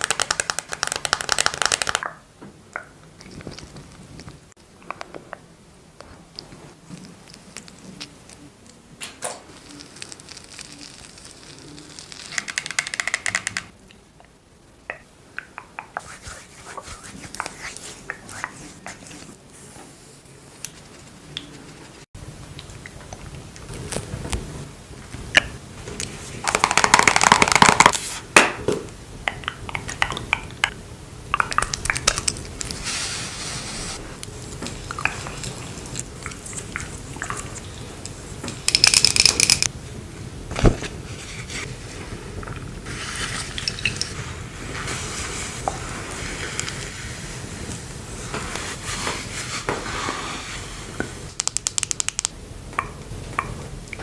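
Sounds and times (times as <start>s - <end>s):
noisy handling sounds: 34.2s - 39.7s
small clicks and taps: 51.4s - 54.0s.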